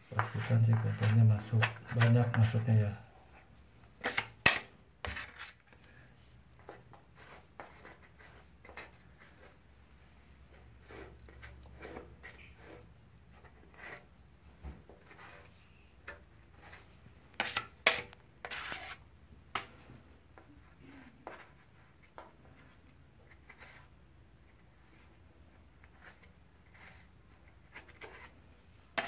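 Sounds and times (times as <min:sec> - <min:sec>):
putty knife scraping: 0:10.8 - 0:12.8, 0:13.7 - 0:14.1, 0:16.1 - 0:19.7.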